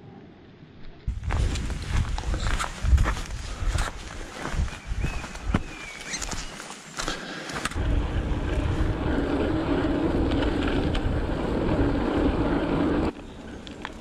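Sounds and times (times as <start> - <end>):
wind on microphone: 1.0 - 6.5, 7.7 - 13.2
tyre rumble on trail: 1.1 - 14.0.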